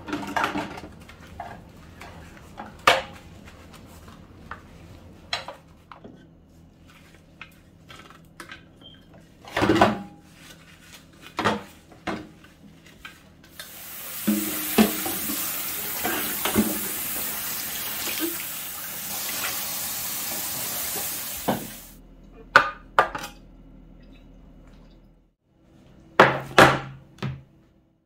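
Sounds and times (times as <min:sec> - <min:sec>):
plastic parts knocking in sink: 0:14.2 - 0:17.0.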